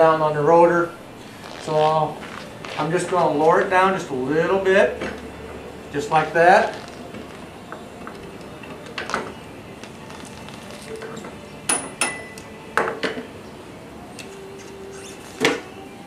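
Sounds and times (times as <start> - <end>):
short metallic ring: 11.7 - 12.4.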